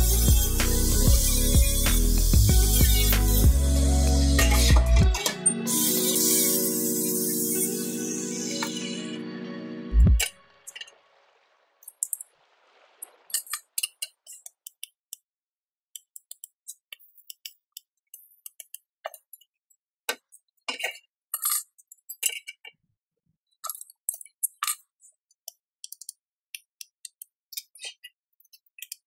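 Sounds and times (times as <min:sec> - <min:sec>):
tack welding crackles: 0:00.0 - 0:08.8.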